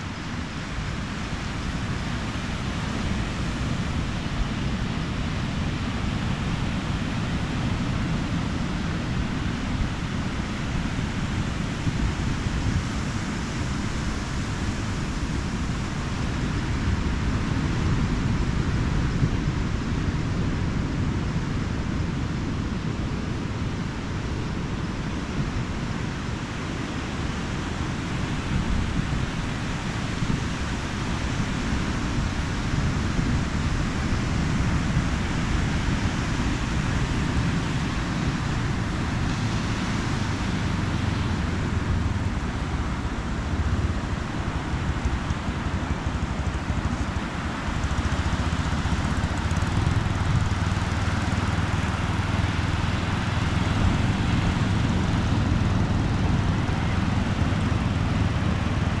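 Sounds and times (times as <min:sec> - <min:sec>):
low wind rumble on microphone: 0:00.0 - 0:59.0
ocean surf breaking: 0:27.2 - 0:59.0.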